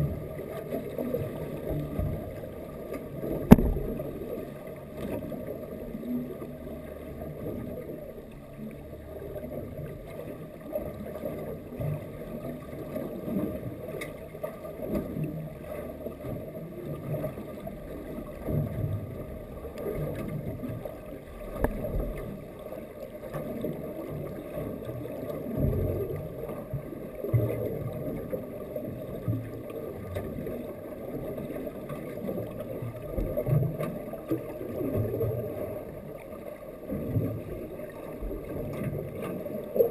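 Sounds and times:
low rumble of moving water: 0.0 - 39.9
faint clicks: 0.5 - 5.6, 10.8 - 16.4, 19.6 - 28.4.

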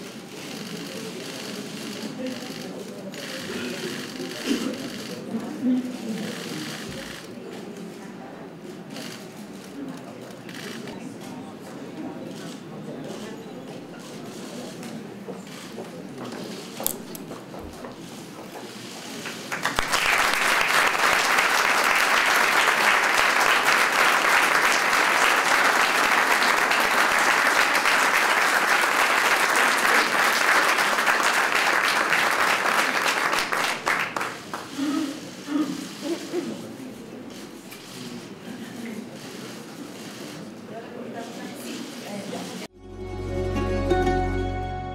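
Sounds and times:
group applauding: 19.2 - 35.0.

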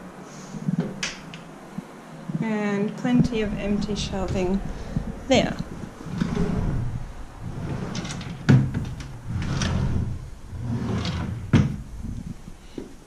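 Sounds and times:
furniture doors knocking shut: 10.8 - 12.1.

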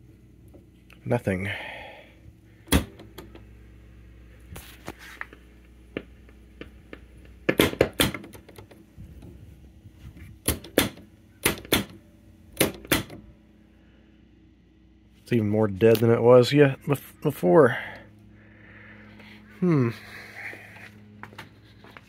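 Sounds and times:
faint steady low hum: 8.3 - 22.0.

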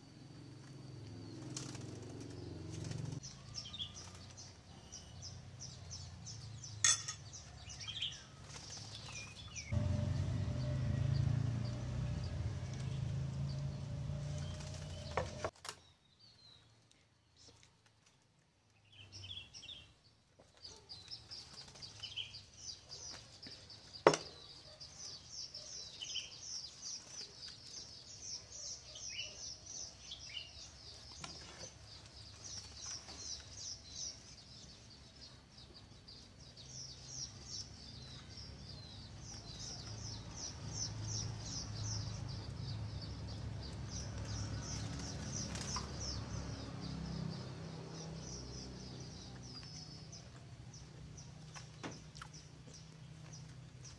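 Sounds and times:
small birds chirping: 0.0 - 53.9
low rumble: 9.6 - 15.4.

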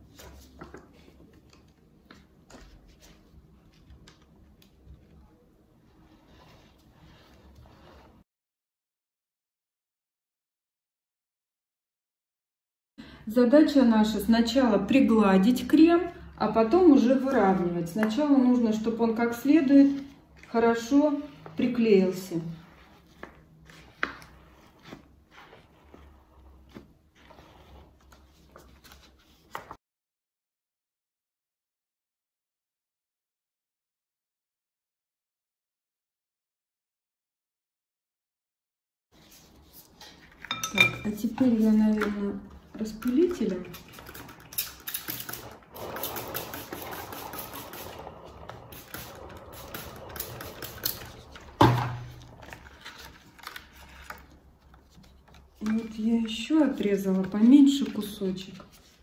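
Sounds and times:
spray bottle squirts: 44.9 - 48.0, 48.7 - 51.1
thump on table: 51.6 - 52.1.

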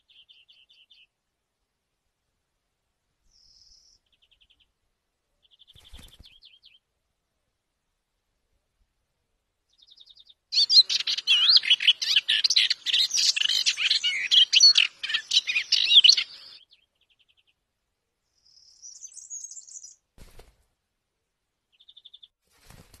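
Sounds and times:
warbler singing: 0.0 - 1.1, 3.3 - 4.7, 9.7 - 17.6, 18.4 - 20.0, 21.7 - 22.3.

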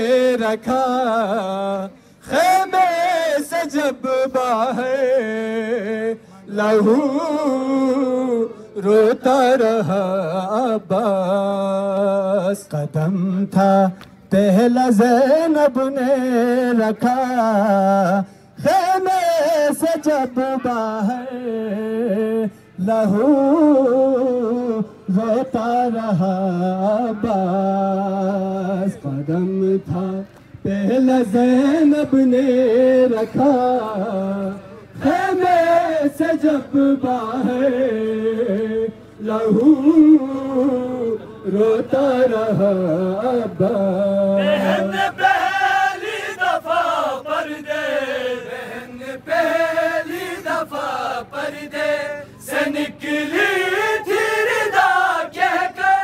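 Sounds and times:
men chanting a lament: 0.0 - 56.0.

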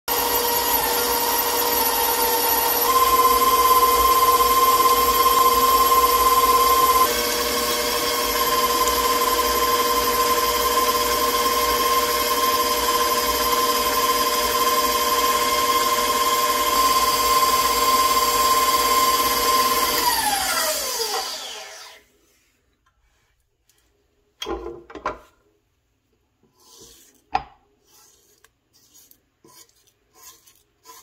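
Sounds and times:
stand mixer whining: 0.1 - 22.0.

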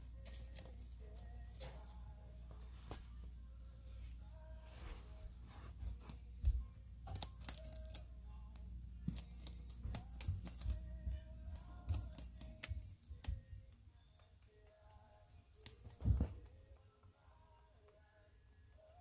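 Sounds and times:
rabbit rustling in dry grass: 0.0 - 6.4.

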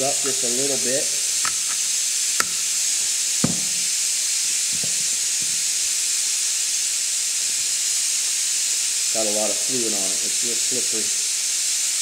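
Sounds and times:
steady hiss: 0.0 - 12.0
pliers clicking on metal: 1.4 - 2.7.

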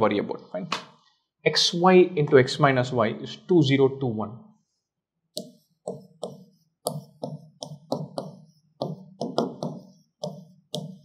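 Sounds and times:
marker writing on a board: 5.4 - 11.0.

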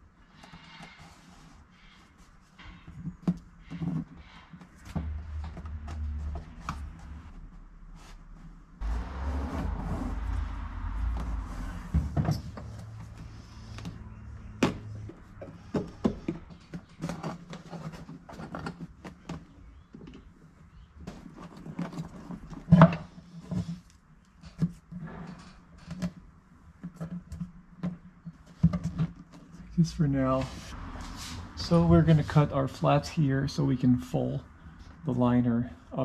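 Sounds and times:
low steady hum: 5.0 - 15.4
fabric rustling and scraping: 5.8 - 13.8.

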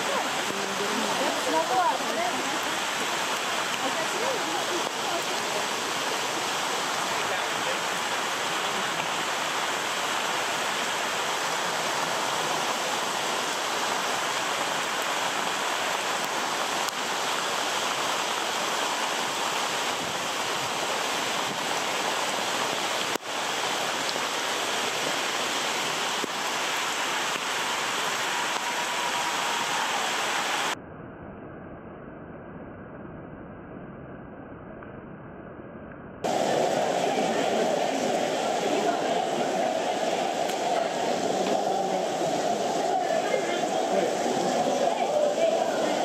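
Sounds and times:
rain pouring: 0.0 - 30.8, 36.2 - 46.0.

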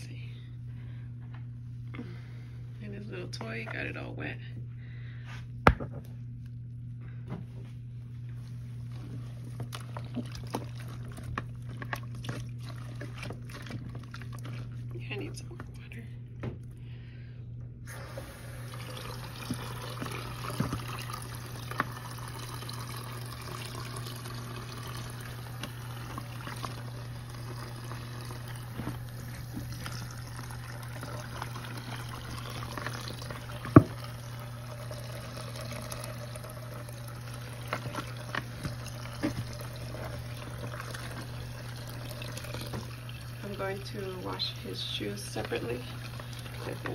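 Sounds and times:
wet clothes sloshing: 8.4 - 15.5, 18.5 - 46.9
water running into a tub: 8.6 - 15.8, 17.9 - 46.9.

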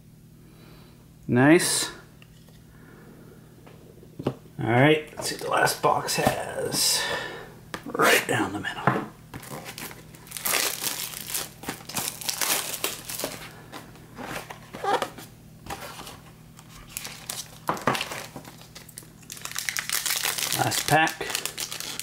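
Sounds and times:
plastic shrink wrap crinkling: 9.4 - 22.0.

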